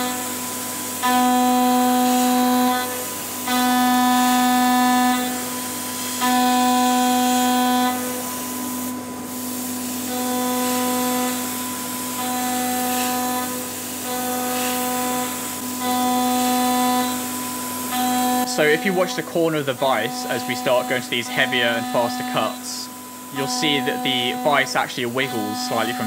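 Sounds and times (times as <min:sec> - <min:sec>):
milling cutter whining on metal: 0:00.0 - 0:26.0
coolant sprayer hissing: 0:18.4 - 0:26.0.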